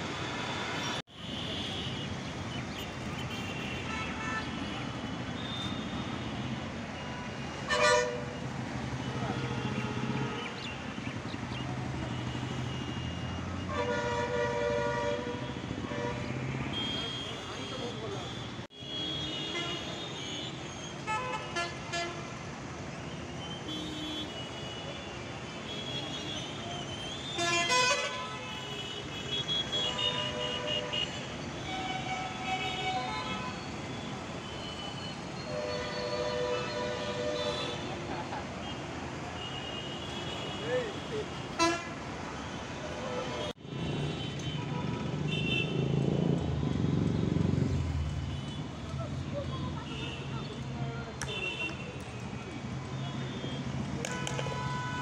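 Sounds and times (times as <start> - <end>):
city traffic hum: 0.0 - 55.0
vehicle horns honking: 0.4 - 2.2, 3.0 - 10.6, 12.0 - 22.3, 23.5 - 38.0, 38.6 - 46.0, 53.0 - 55.0.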